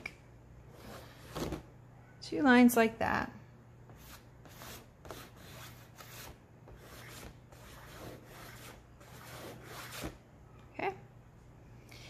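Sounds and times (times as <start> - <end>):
chalk scratching on board: 3.9 - 10.2.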